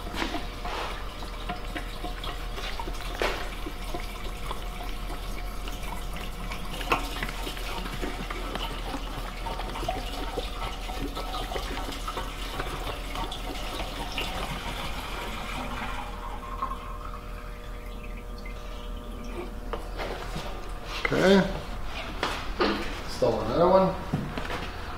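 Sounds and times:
fuel pouring into tank: 0.0 - 21.4.

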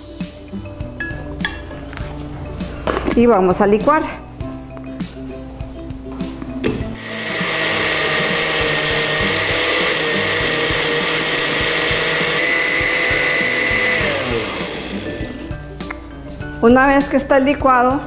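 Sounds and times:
blender motor winding down: 7.0 - 15.6
blender running: 7.0 - 15.6.

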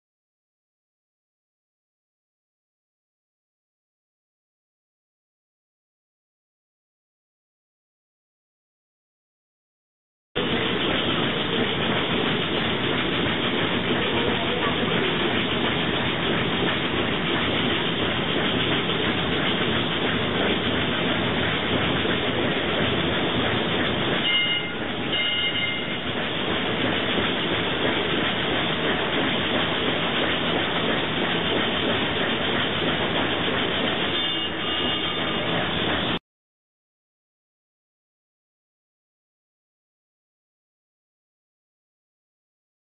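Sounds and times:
steam ship hiss and rumble: 10.4 - 36.2
brief high tones: 24.2 - 26.0.

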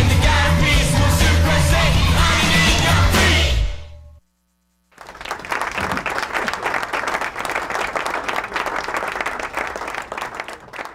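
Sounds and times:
crowd clapping: 4.9 - 10.9.

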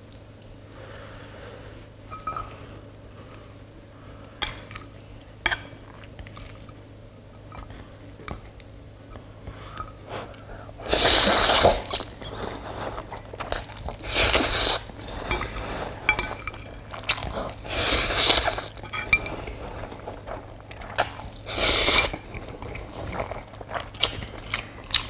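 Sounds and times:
person slurping noodles: 10.8 - 15.0.

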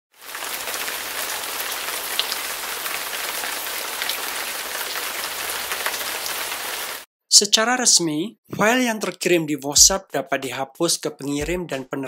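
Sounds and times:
rain-like hiss: 0.2 - 7.1.

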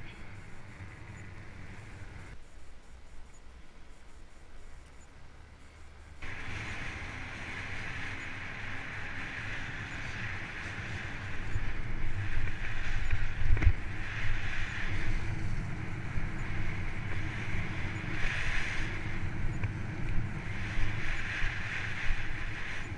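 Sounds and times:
bike tyres rolling over grass: 6.2 - 22.9
wind buffeting microphone: 6.2 - 22.9.

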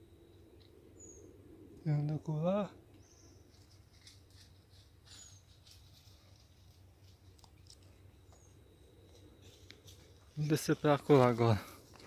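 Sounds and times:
light rustling: 3.4 - 8.4
faint high chirps: 7.6 - 10.8.

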